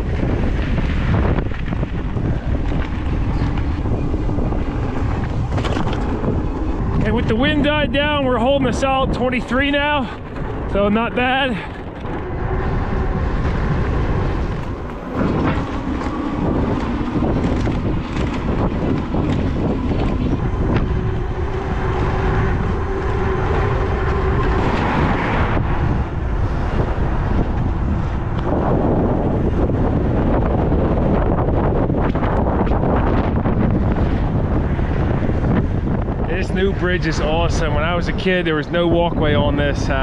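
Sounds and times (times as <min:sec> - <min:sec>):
electric bike hum: 0:00.0 - 0:40.0
wind buffeting microphone: 0:00.0 - 0:40.0.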